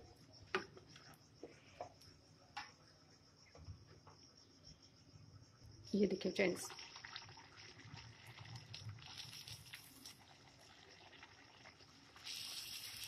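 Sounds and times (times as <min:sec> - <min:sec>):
food frying in hot oil: 0:06.6 - 0:13.0.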